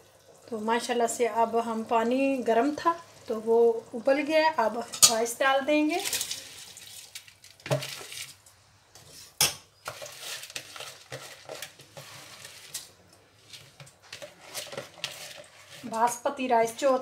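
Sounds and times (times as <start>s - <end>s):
spoon knocking and scraping pot: 9.0s - 12.9s, 13.5s - 16.2s.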